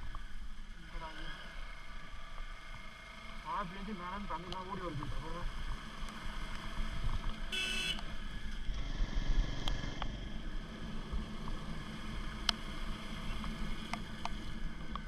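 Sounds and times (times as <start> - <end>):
motorcycle engine rumble: 0.0 - 15.0.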